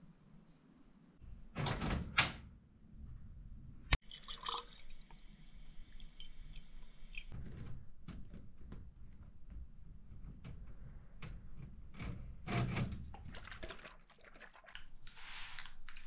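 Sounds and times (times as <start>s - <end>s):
tap water running into bottle: 4.0s - 7.3s.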